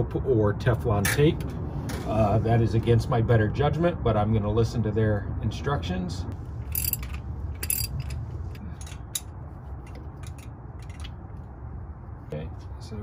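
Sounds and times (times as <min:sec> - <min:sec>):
ratchet wrench clicking: 0:06.7 - 0:08.2.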